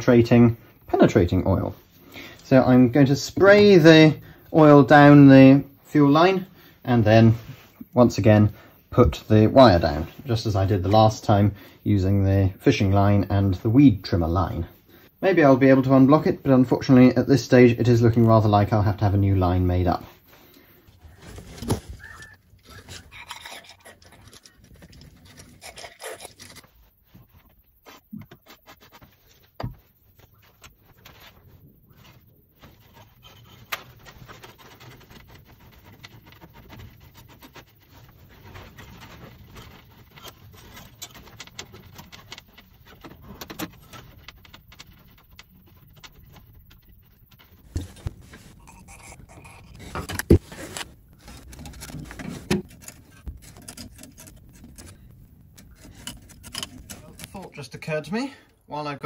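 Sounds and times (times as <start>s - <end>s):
wire scraping in pipe: 20.1s - 29.6s, 30.2s - 58.2s.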